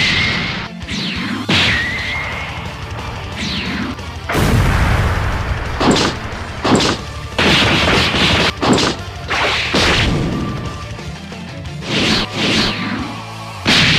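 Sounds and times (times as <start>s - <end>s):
rushing blast with low rumble: 1.5s - 8.7s
sharp punch impacts: 4.3s - 10.3s, 13.6s - 13.9s.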